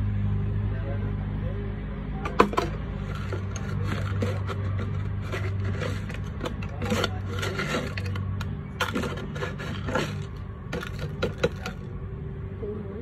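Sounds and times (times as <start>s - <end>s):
scraping and rubbing knocks: 2.3s - 11.9s.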